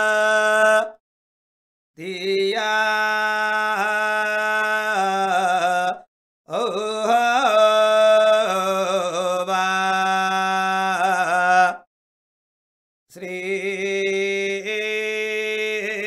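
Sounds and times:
person chanting: 2.0 - 11.9, 13.2 - 16.0.

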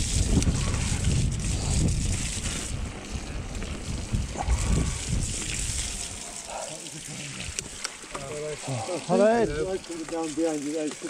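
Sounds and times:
wind buffeting microphone: 0.0 - 6.6.

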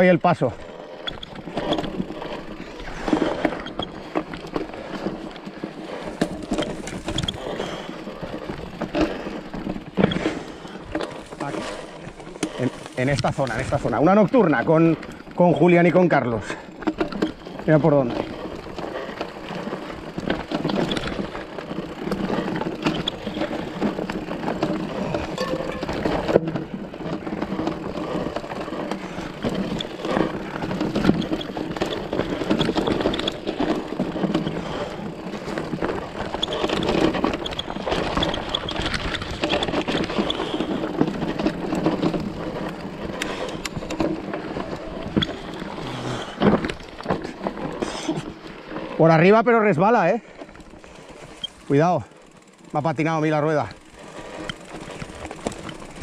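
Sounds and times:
bike rattling: 0.0 - 56.0
tyres crunching over dirt and stones: 0.0 - 56.0.

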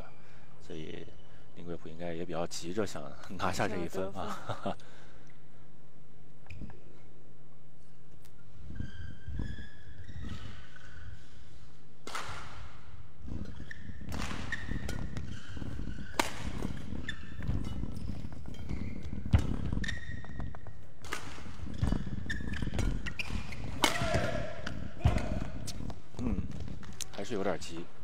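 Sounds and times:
shoes squeaking on court: 8.3 - 28.0
rackets smacking shuttlecock: 12.0 - 27.2.

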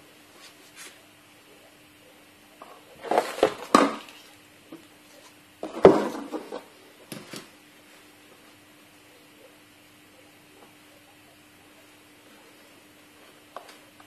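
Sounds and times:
faint steady hum: 0.0 - 14.0
objects clattering: 2.6 - 4.4, 5.6 - 7.5.

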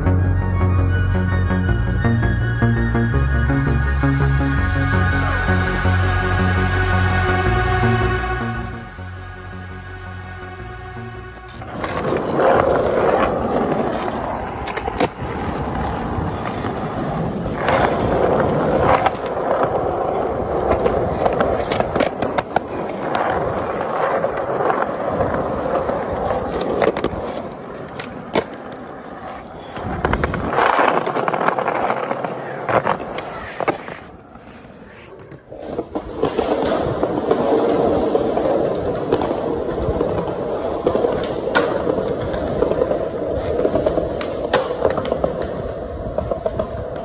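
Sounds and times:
skateboard wheels rolling on concrete: 0.0 - 47.0
skateboard clacking on ground: 11.4 - 47.0.

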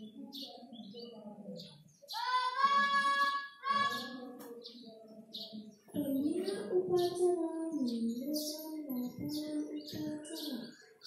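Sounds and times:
faint background chatter: 0.0 - 11.0
child singing high note: 2.2 - 4.2.

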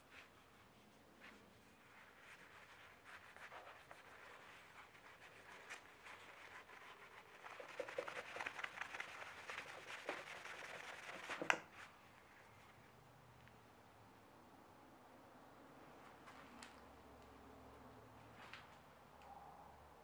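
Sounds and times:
cloth rubbing on wood: 0.0 - 11.5.

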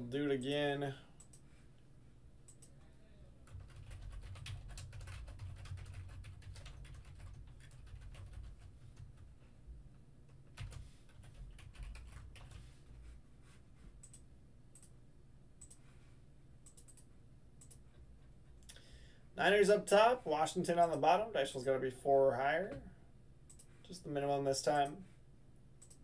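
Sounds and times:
typing on computer keyboard: 3.5 - 9.3, 10.5 - 12.6.

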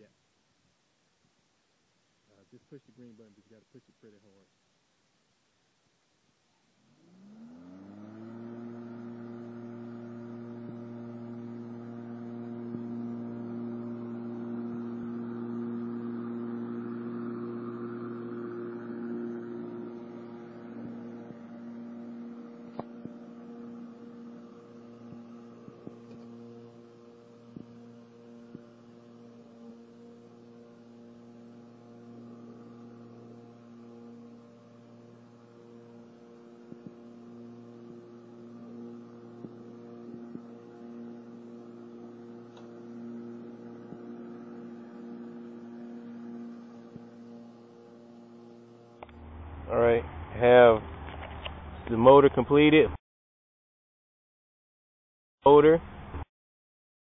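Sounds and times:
electric mower motor humming: 6.8 - 51.9.

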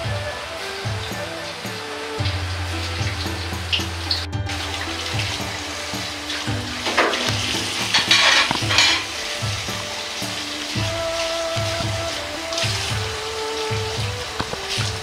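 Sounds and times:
background music with bass line: 0.0 - 15.0
loud rushing hiss: 0.0 - 15.0.

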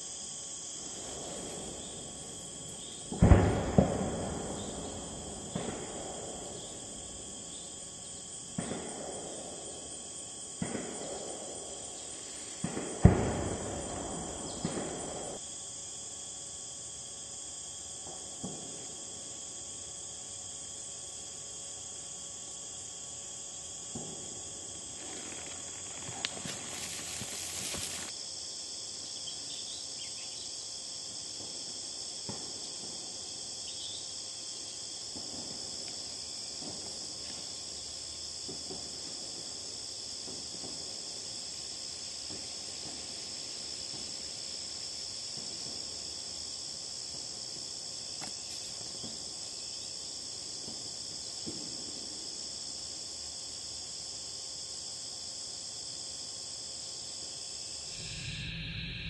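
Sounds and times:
insects trilling: 0.0 - 59.0
brief rush of noise: 57.9 - 59.0.

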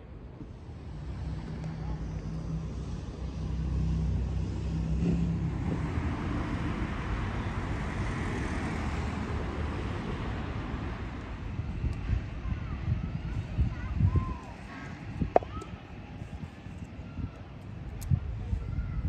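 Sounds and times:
vehicle engine humming: 0.0 - 18.0
road traffic noise: 0.0 - 19.0.

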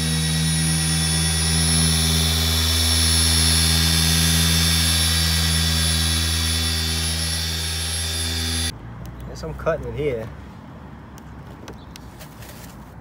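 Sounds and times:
electric polisher humming: 0.0 - 8.7.

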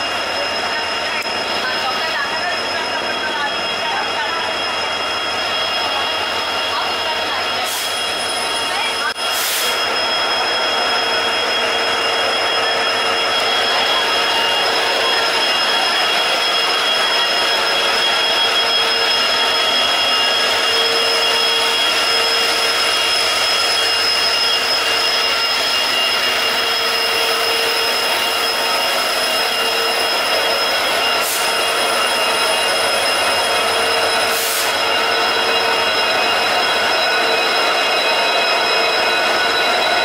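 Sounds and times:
diesel locomotive idling: 0.0 - 40.0
high-pitched whine: 0.0 - 40.0.

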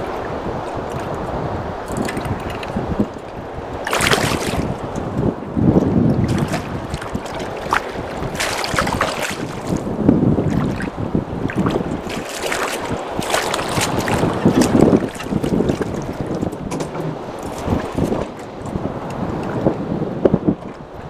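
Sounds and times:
water slapping against boat: 0.0 - 21.0
wind buffeting microphone: 0.0 - 21.0
fish thrashing splashes: 1.8 - 4.9, 6.2 - 16.4.

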